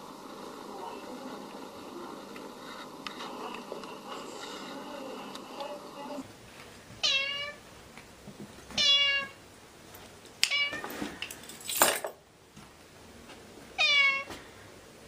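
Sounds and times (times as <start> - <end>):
breathy noise: 0.4 - 6.2
cat meowing: 7.0 - 7.6, 8.8 - 9.4, 10.5 - 10.8, 13.8 - 14.3.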